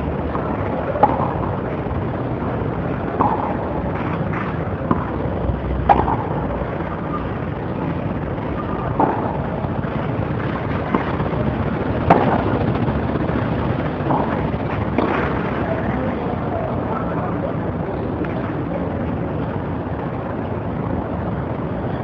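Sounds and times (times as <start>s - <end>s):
tennis rackets hitting ball: 0.0s - 16.4s
steady rumble: 0.0s - 22.0s.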